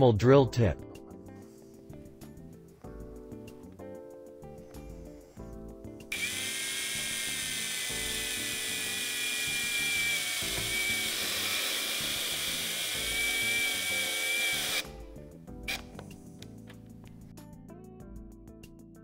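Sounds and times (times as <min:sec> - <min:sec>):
power drill driving screw into metal: 0:06.1 - 0:14.9.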